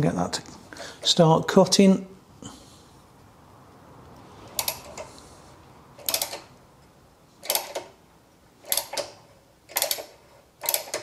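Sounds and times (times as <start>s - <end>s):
ratcheting tap wrench clicking: 9.7s - 11.0s.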